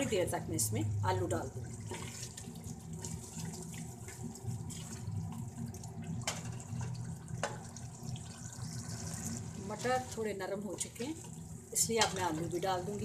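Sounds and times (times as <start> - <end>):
peas simmering in liquid: 1.0 - 13.0.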